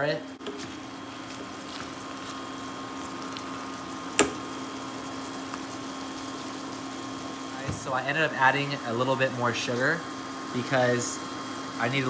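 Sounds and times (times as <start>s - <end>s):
wooden spatula stirring: 0.4s - 2.6s
food sizzling in a pan: 0.4s - 12.0s.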